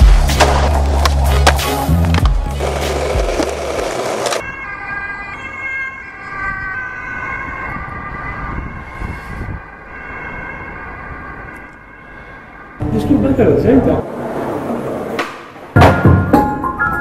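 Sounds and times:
street traffic noise: 0.0s - 15.8s
emergency vehicle siren: 2.6s - 13.9s.

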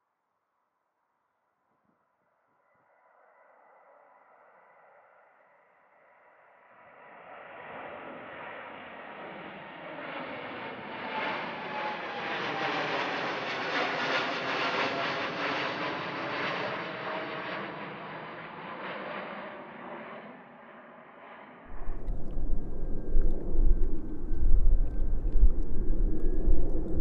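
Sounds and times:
jet airliner passing: 9.2s - 27.0s
engine whine dropping in pitch: 21.7s - 27.0s.

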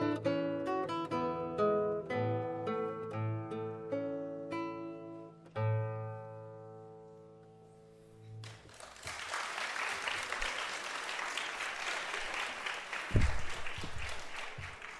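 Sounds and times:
classical guitar chord: 0.0s - 8.4s
audience applause: 8.4s - 14.9s.

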